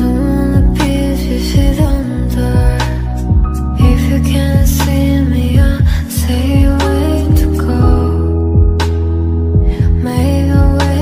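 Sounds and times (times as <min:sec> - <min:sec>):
background music with steady beat: 0:00.0 - 0:11.0
deep kick drum: 0:00.6 - 0:00.8, 0:01.6 - 0:02.0, 0:02.6 - 0:05.0, 0:05.6 - 0:08.8, 0:09.6 - 0:11.0.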